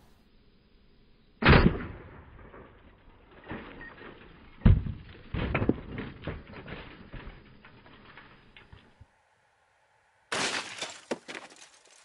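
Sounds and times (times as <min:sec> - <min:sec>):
shotgun shots: 0:01.4 - 0:02.8
pieces landing with thuds: 0:03.4 - 0:09.0, 0:10.3 - 0:12.0.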